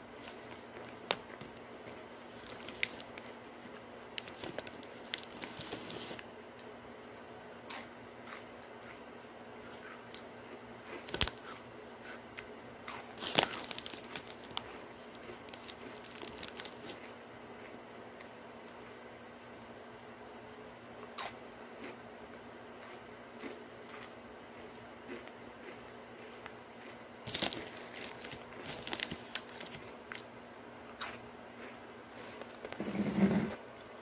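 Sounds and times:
plastic snack bag crinkling: 0:00.0 - 0:06.2, 0:10.9 - 0:11.6, 0:13.1 - 0:17.1, 0:27.2 - 0:30.3.

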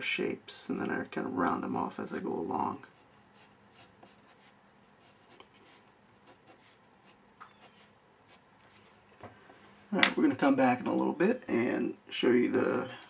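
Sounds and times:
pencil scratching on paper: 0:02.9 - 0:09.0.

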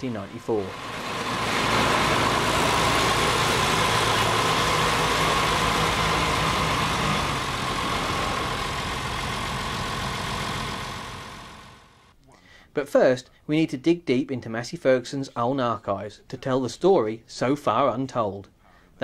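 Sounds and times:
tractor diesel engines running: 0:00.0 - 0:12.1
high whine: 0:00.6 - 0:12.1.

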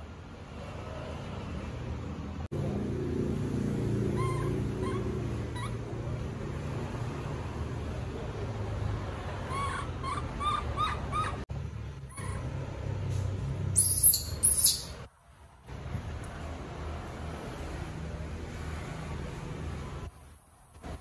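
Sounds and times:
baby monkey squeaky cries: 0:04.1 - 0:05.9, 0:09.4 - 0:11.4, 0:12.1 - 0:12.6, 0:13.8 - 0:15.0.

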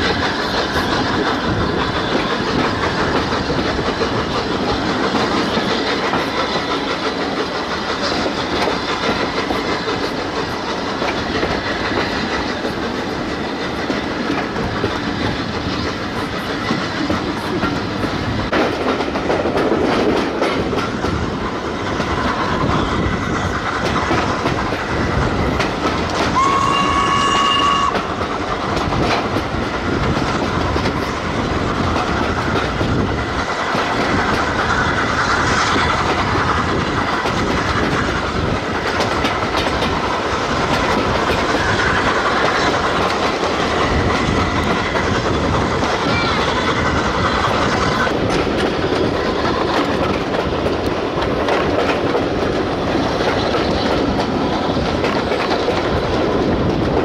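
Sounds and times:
train wheels clattering on rails: 0:00.0 - 0:57.0
train whistle: 0:26.2 - 0:28.2.

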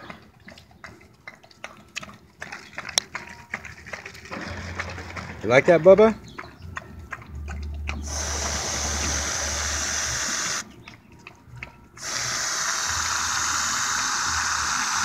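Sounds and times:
aerosol whipped cream spraying: 0:08.0 - 0:10.6, 0:12.0 - 0:15.0.

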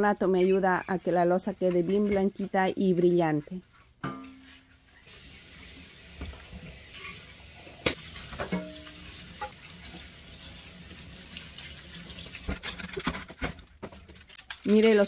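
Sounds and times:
faucet running into sink: 0:05.1 - 0:12.5
dishware clattering: 0:08.3 - 0:09.6, 0:14.5 - 0:15.0.

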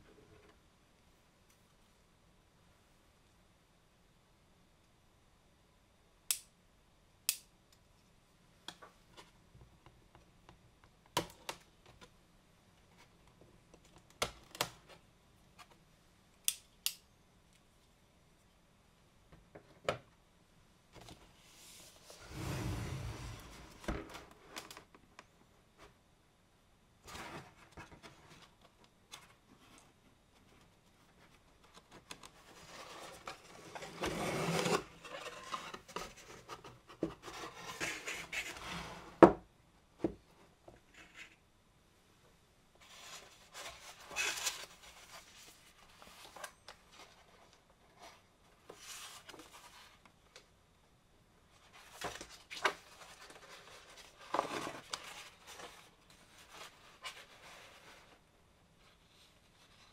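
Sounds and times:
box sliding out of cardboard sleeve: 0:21.8 - 0:23.9, 0:33.8 - 0:35.6.

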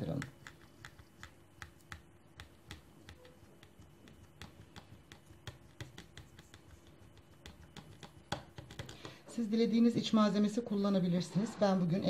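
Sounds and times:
faint clicks and taps: 0:00.0 - 0:09.2.

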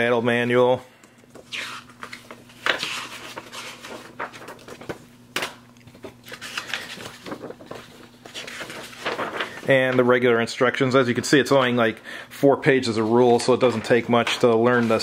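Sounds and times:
paper rustling and sliding: 0:01.4 - 0:05.1, 0:05.9 - 0:10.3, 0:12.8 - 0:15.0.

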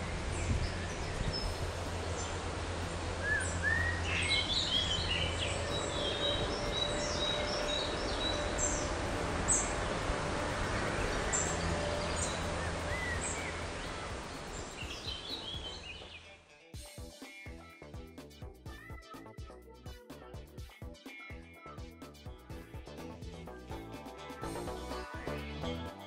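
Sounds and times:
outdoor background rumble: 0:00.0 - 0:16.2
birds chirping: 0:00.0 - 0:16.4.

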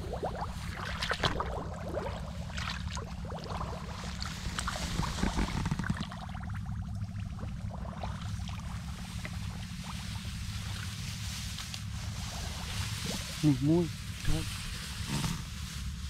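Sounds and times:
bare feet splashing through water: 0:00.0 - 0:06.6
steady low rumble: 0:00.0 - 0:16.0.

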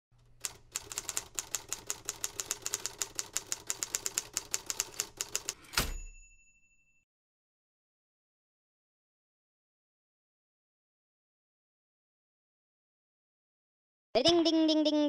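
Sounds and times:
typewriter keys clacking: 0:00.4 - 0:05.9.

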